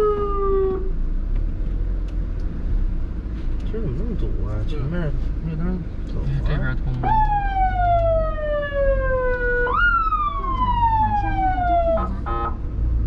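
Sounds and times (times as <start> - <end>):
ambulance siren: 0.0 - 0.9, 7.0 - 12.5
engine and road rumble: 0.0 - 13.0.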